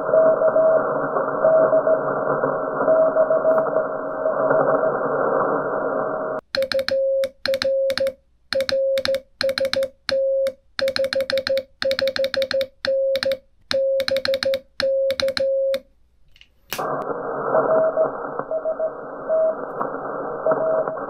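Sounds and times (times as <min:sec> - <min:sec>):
key clicks: 0:06.5 - 0:15.8
morse code tone: 0:06.5 - 0:15.8.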